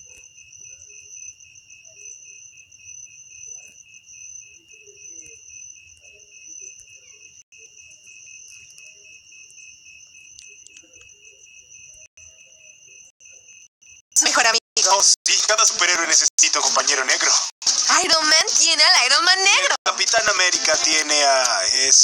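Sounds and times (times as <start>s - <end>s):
cricket trilling: 0.0s - 15.6s.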